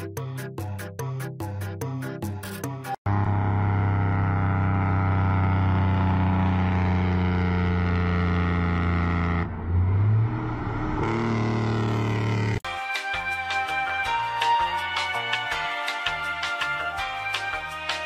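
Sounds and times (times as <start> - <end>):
vehicle engine droning: 3.0 - 12.6.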